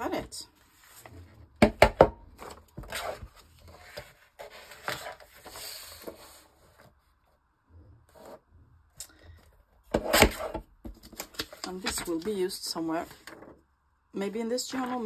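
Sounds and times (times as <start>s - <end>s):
paper rustling: 2.4s - 7.0s.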